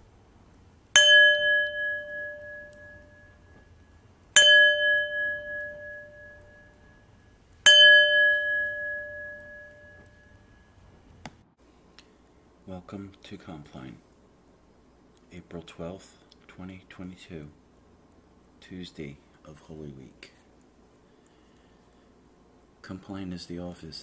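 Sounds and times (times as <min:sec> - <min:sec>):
bell ringing: 0:01.0 - 0:03.6, 0:04.4 - 0:07.0, 0:07.7 - 0:10.7.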